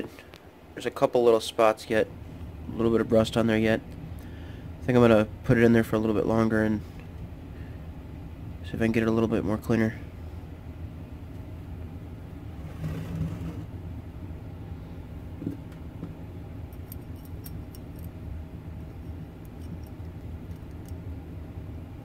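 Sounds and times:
low background hum: 0.0s - 22.0s
wire clicking and scraping on wrench: 16.7s - 18.2s.

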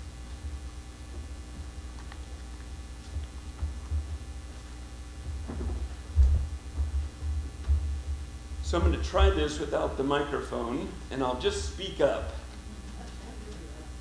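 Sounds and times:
low steady hum: 0.0s - 14.0s
low thumps: 3.0s - 10.0s.

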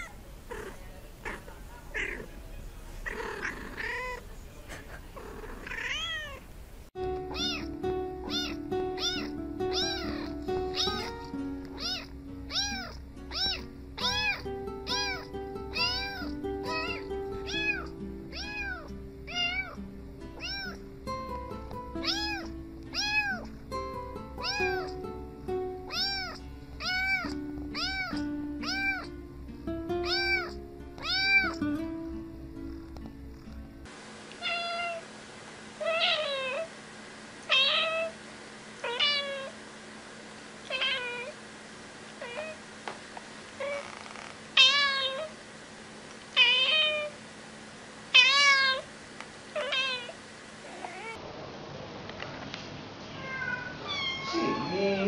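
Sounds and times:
kitten meowing: 5.6s - 6.4s, 7.3s - 7.7s, 8.3s - 19.8s, 20.4s - 20.8s, 22.0s - 23.5s, 24.4s - 25.0s, 25.9s - 29.1s, 30.0s - 31.6s, 40.7s - 41.4s, 44.6s - 45.3s, 53.2s - 55.0s
background music: 7.0s - 33.9s
adult cat meowing loudly: 30.0s - 31.6s, 53.1s - 55.0s.

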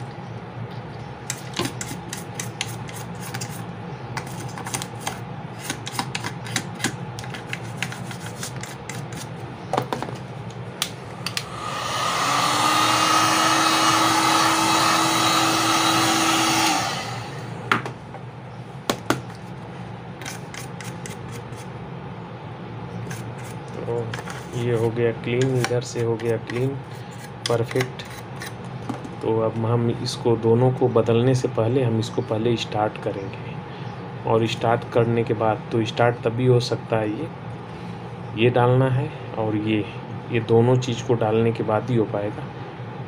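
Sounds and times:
hot-air blower running: 10.8s - 18.0s.

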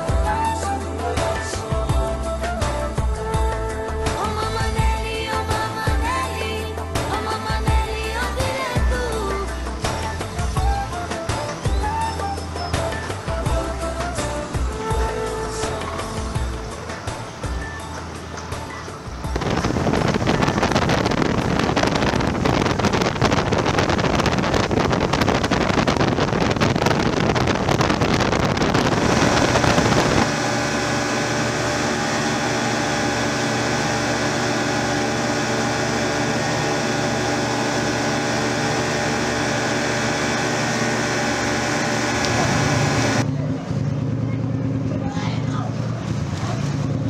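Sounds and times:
motorboat engine drone: 0.0s - 47.0s
wind on microphone: 19.1s - 30.4s.

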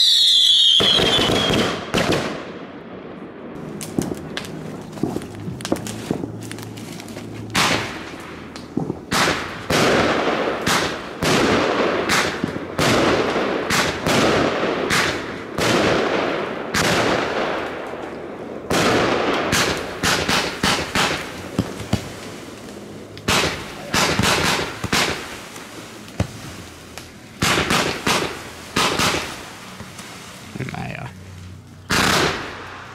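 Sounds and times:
firework battery firing: 0.0s - 2.7s, 3.6s - 31.0s, 31.8s - 32.9s.

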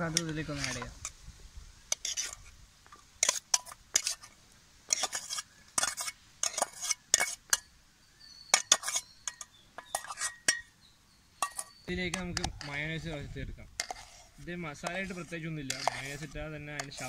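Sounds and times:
metal spoon scraping a steel bowl: 0.0s - 1.1s, 1.9s - 2.5s, 3.2s - 4.3s, 4.9s - 7.7s, 8.5s - 10.7s, 11.4s - 17.0s.

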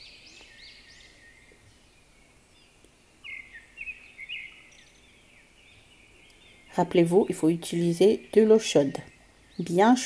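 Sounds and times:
birds chirping: 0.0s - 10.0s.

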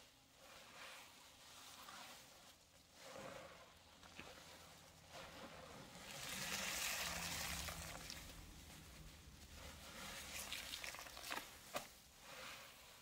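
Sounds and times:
wet paste squished by hand: 4.0s - 12.0s
small crackles: 7.3s - 12.0s.

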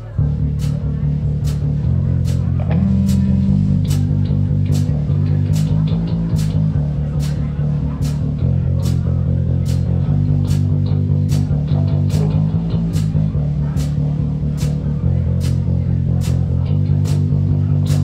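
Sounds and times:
electric bass guitar riff: 0.0s - 18.0s
guitar: 0.0s - 18.0s.

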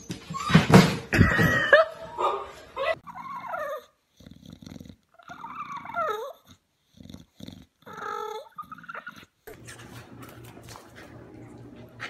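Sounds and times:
dog whining: 2.2s - 6.6s, 7.8s - 9.4s
dog grunting breaths: 3.0s - 9.5s.

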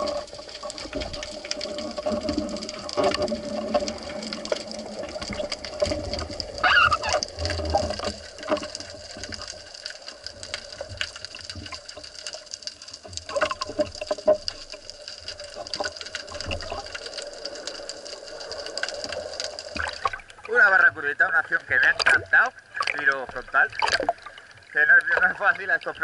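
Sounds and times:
crackling clicks: 0.0s - 26.0s
rush of water: 0.0s - 26.0s
underwater water hiss: 15.3s - 19.9s.

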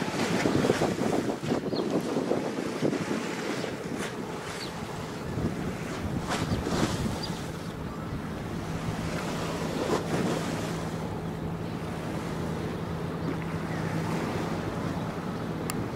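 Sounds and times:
waves washing: 0.0s - 15.9s
wind buffeting microphone: 0.0s - 15.9s
ship diesel engine drone: 3.5s - 15.9s.

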